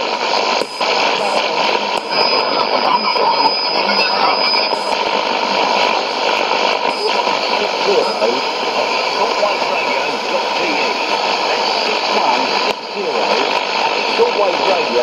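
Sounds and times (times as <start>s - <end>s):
radio static and hiss: 0.0s - 15.0s.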